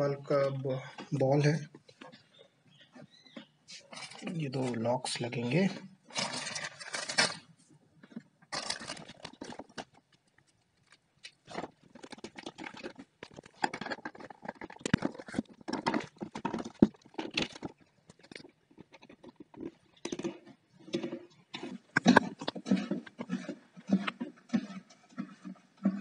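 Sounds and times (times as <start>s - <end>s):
cistern fittings clicking and knocking: 11.5s - 26.0s.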